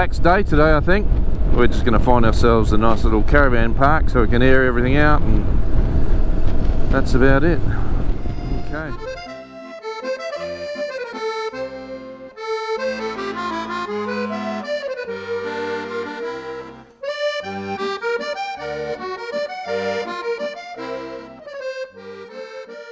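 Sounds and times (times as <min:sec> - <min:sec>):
background music melody: 0:08.1 - 0:22.9.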